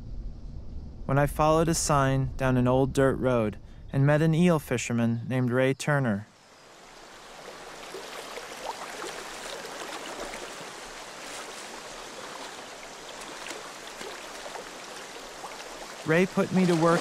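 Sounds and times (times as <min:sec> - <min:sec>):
small splashes: 0:06.8 - 0:17.0
water rushing over rocks: 0:07.0 - 0:17.0.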